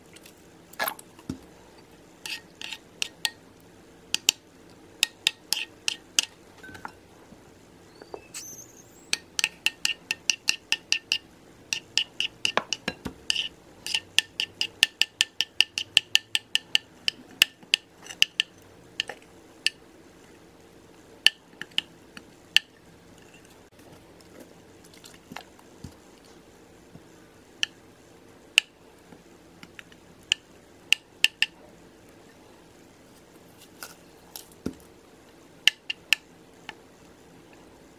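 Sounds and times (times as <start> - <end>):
metal spoon clinking bowl: 5.0 - 7.0.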